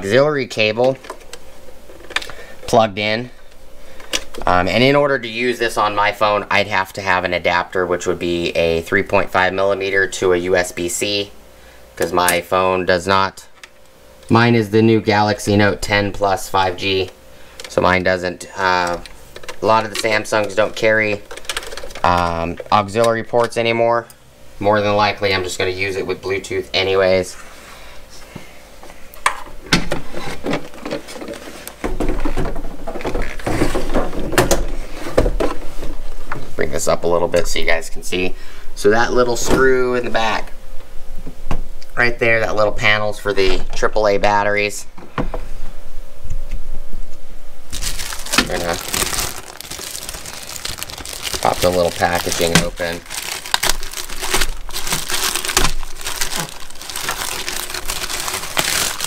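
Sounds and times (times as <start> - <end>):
plastic bag crinkling: 18.6 - 22.6, 47.7 - 59.0.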